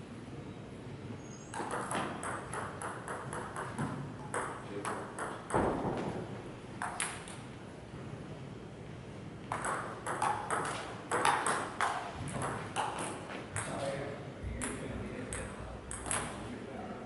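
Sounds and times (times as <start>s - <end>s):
table tennis ball clicking: 1.6s - 5.7s, 6.8s - 7.4s, 9.5s - 13.7s, 14.6s - 16.4s.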